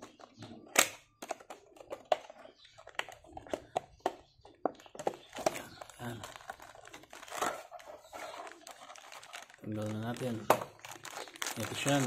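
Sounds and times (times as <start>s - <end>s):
plastic snap: 0.7s - 2.3s
plastic packaging crackling: 4.8s - 12.0s.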